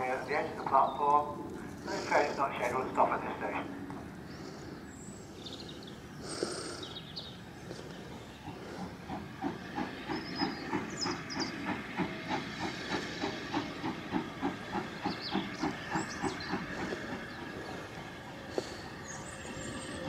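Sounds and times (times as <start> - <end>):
steam locomotive chuffing: 0.0 - 20.0
hiss of steam: 1.9 - 3.4, 8.4 - 20.0.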